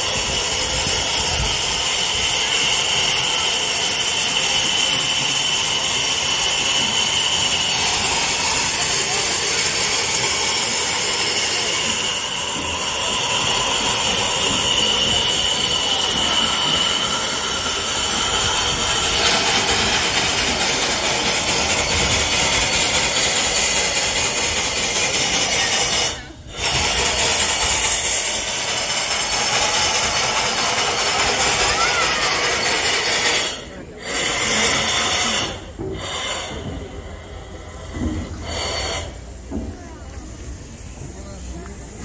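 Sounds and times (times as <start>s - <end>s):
steam locomotive hissing: 0.0s - 42.0s.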